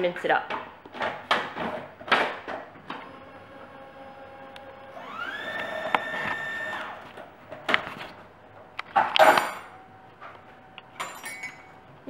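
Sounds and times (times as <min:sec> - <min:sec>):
food processor whining: 0:02.9 - 0:07.2.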